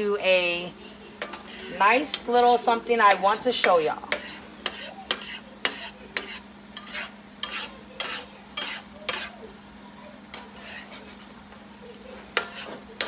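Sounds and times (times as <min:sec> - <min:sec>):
faint sizzle of frying: 0:00.0 - 0:13.0
spatula scraping a pan: 0:01.2 - 0:09.5, 0:10.2 - 0:11.4, 0:12.1 - 0:13.0.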